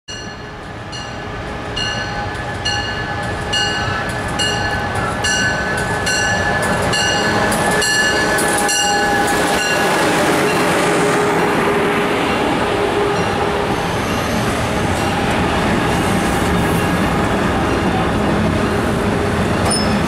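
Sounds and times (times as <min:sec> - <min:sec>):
train bell ringing: 0:00.1 - 0:10.9, 0:13.1 - 0:13.9, 0:16.6 - 0:18.5, 0:19.6 - 0:20.0
locomotive high whine: 0:00.1 - 0:20.0
train wheels rumbling on rails: 0:00.1 - 0:20.0.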